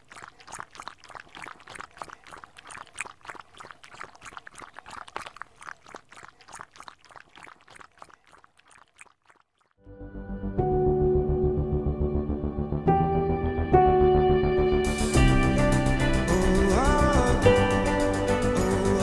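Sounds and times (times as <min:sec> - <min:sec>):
dog lapping water: 0:00.0 - 0:09.8.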